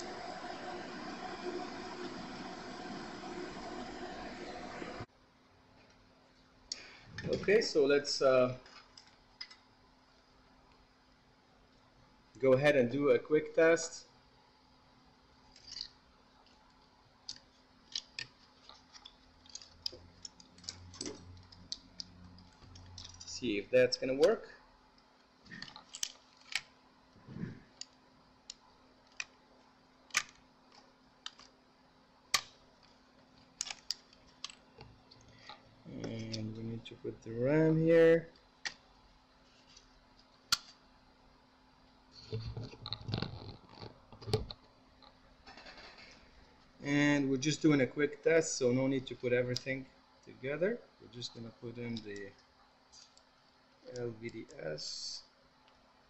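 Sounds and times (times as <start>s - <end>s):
faint low hum: 0.0s - 56.0s
small parts clicking and tapping: 8.6s - 9.7s, 15.5s - 23.4s, 24.9s - 26.8s, 27.7s - 29.4s, 30.0s - 31.6s, 32.3s - 36.4s, 38.3s - 39.0s.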